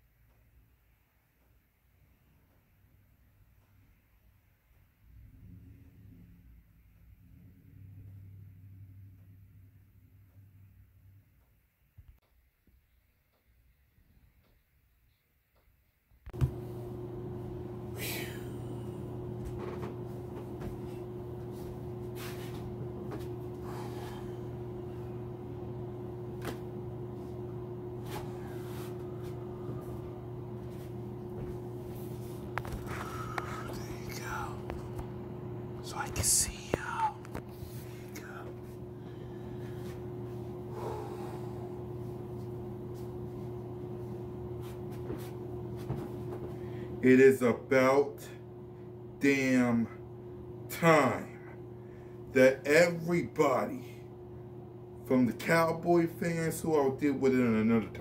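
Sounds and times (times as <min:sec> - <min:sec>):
electrical mains hum: 0:00.0 - 0:58.0.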